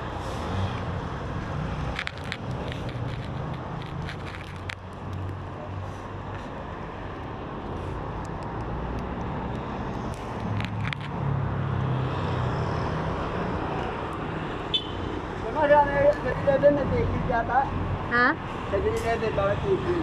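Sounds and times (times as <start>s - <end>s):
car and motorcycle engines passing: 6.8s - 20.0s.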